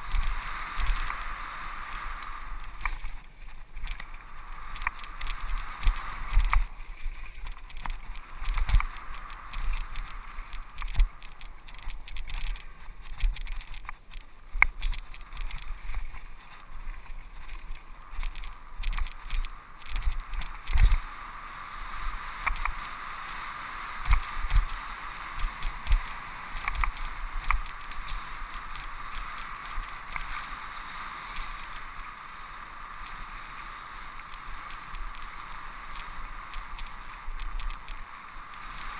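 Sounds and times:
bike tyres rolling on dirt: 0.0s - 38.9s
bike thumping and rattling over bumps: 2.7s - 21.1s, 24.0s - 30.5s.

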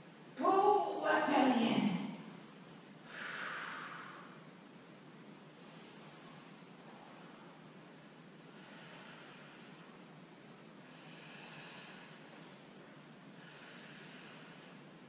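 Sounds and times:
woman breathing slowly: 3.0s - 15.0s.

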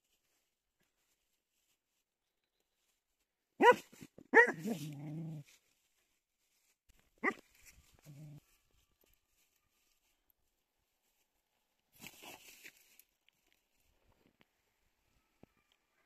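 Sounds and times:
dog barking: 3.6s - 5.0s, 7.2s - 7.4s.

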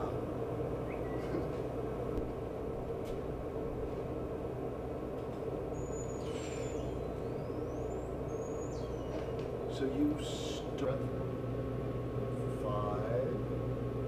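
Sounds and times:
steady low rumble: 0.0s - 14.0s
high dolphin-like whistles: 5.8s - 9.3s.

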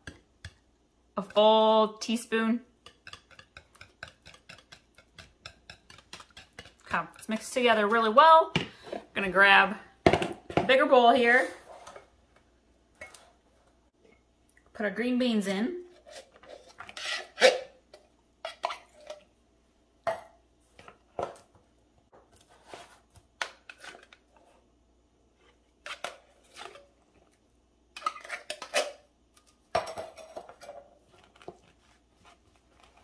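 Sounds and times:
spatula scraping inside can: 15.9s - 17.7s.

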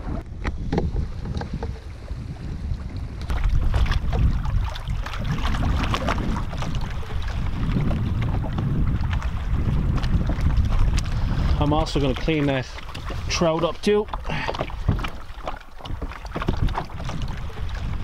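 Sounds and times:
waves lapping against rocks: 0.0s - 18.0s
wind buffeting microphone: 0.0s - 18.0s.

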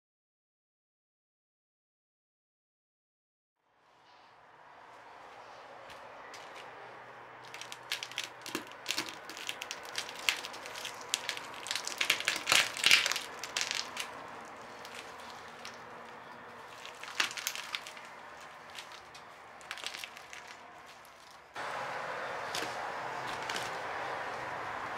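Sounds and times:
eggshells crunching under boot: 7.4s - 21.5s.

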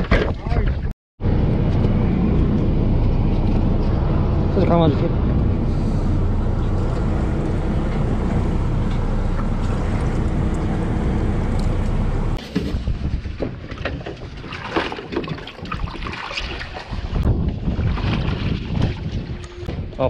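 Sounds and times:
boat engine rumble: 0.3s - 20.0s.

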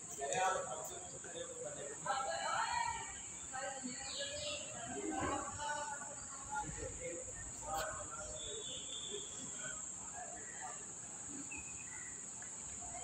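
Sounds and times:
faint bird chirps: 3.2s - 4.8s, 7.4s - 9.8s, 11.3s - 12.4s.

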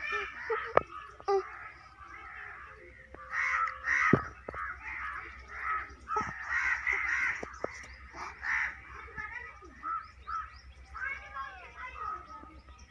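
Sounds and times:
crows cawing: 0.0s - 12.2s.

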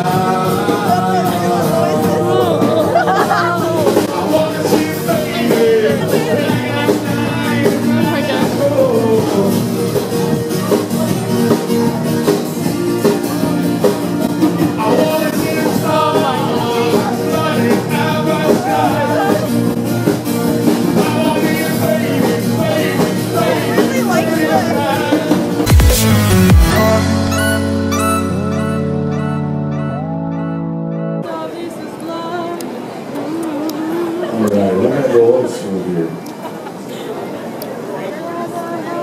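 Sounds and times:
rock band with singer: 0.0s - 30.5s.

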